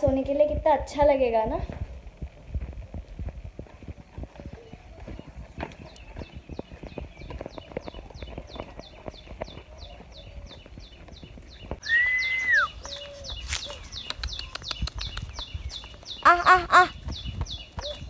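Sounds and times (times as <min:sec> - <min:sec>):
footsteps crunching on dirt path: 0:01.2 - 0:18.0
birds chirping: 0:02.7 - 0:18.0
long whistled bird note: 0:11.8 - 0:12.8
short loud bird calls: 0:11.8 - 0:15.5.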